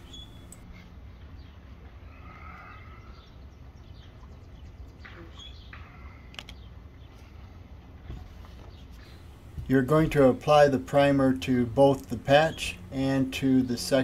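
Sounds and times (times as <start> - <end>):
bird chirps: 0.0 - 0.6
steady low rumble: 9.0 - 14.0.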